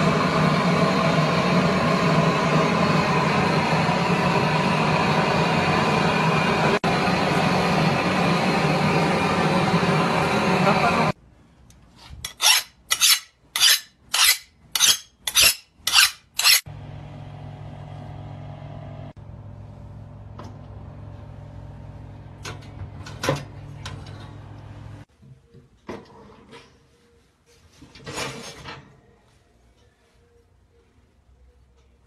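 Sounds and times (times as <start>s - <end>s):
oven electric hum: 0.0s - 11.2s, 16.5s - 25.2s
rasping strokes on metal chimney: 12.0s - 16.7s.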